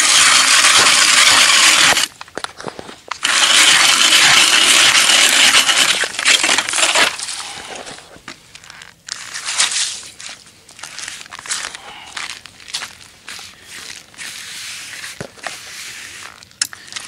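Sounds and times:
ice auger boring into ice: 0.0 - 2.1, 3.1 - 8.0.

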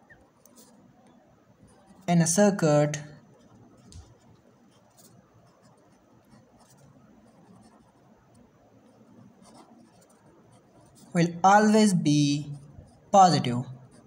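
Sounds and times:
pen scratching on paper: 1.7 - 2.1, 3.3 - 11.4.

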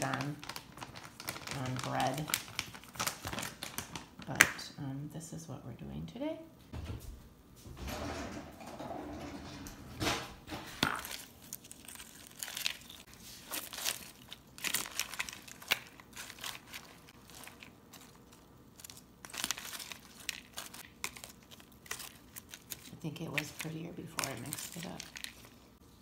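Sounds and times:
crisp chips crunching: 0.0 - 4.2, 10.8 - 25.8
salad leaves rustling: 10.8 - 25.8.

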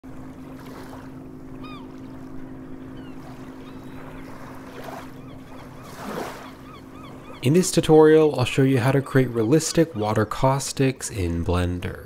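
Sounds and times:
steady low hum: 0.0 - 12.0
water gently lapping: 0.0 - 12.0
bird chirping: 5.2 - 10.4.

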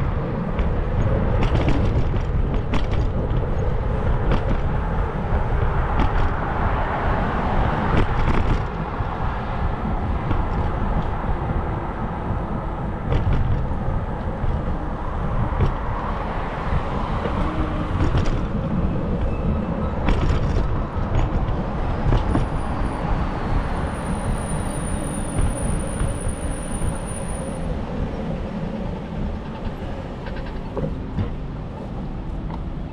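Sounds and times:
bike clicking over bumps: 0.0 - 19.4, 20.0 - 24.6
road traffic hum: 0.0 - 32.9
wind noise on microphone: 0.0 - 32.9.

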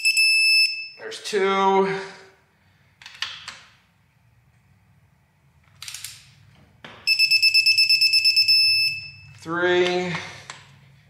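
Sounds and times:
digital torque wrench beeping: 7.1 - 9.4.

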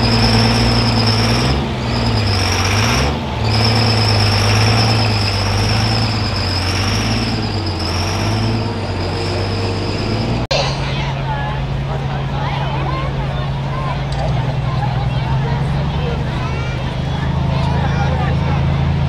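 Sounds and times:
high-pitched turbo whistle: 0.0 - 10.8
diesel engine running: 0.0 - 19.0.

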